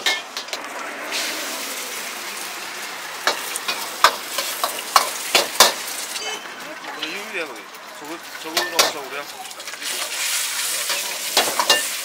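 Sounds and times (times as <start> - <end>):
eggs sizzling in hot oil: 0.0 - 12.0
metal ladle scraping wok: 9.7 - 12.0.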